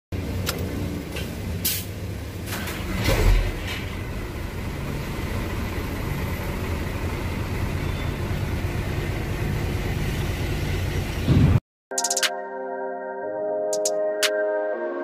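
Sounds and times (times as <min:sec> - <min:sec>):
diesel truck engine idling: 0:03.9 - 0:11.2.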